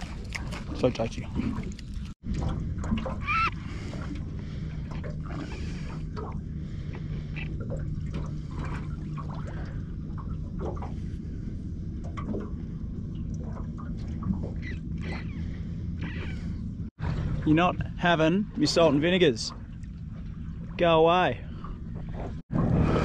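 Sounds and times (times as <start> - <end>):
steady low hum: 0.0 - 23.0
water lapping against boat hull: 0.0 - 23.0.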